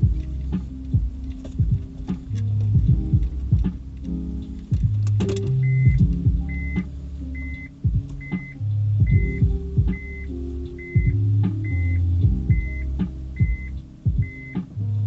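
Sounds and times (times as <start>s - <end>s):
music with heavy bass: 0.0s - 15.0s
clicks: 0.2s - 12.0s
reverse warning beeps: 5.6s - 6.8s, 7.4s - 14.6s.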